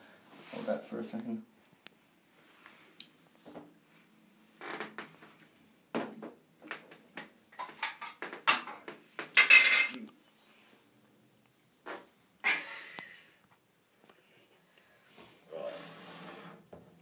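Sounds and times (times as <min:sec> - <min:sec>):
objects clattering and knocking: 0:06.0 - 0:10.1.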